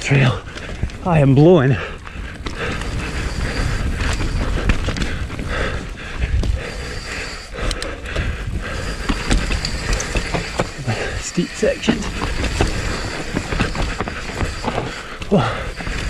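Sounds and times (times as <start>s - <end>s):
bike chain and frame clicks: 0.0s - 16.0s
rider breathing hard: 0.0s - 16.0s
wind on microphone: 1.8s - 16.0s
tyre rumble over dirt: 8.6s - 16.0s.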